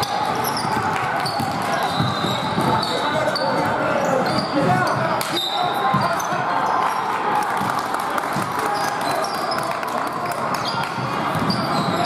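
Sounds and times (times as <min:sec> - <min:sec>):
murmur of voices: 0:00.0 - 0:12.0
basketball bouncing on court: 0:00.4 - 0:03.0, 0:05.7 - 0:06.3, 0:10.6 - 0:12.0.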